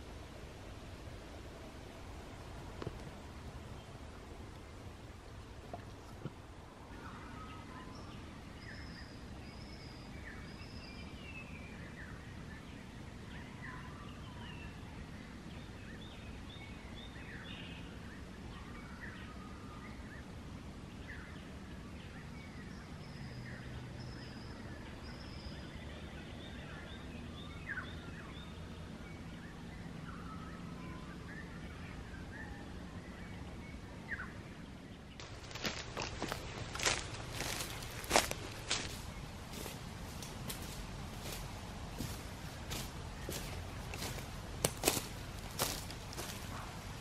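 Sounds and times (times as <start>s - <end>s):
steady low rumble: 34.6s - 47.0s
birds chirping and whistling: 35.2s - 41.4s, 42.0s - 47.0s.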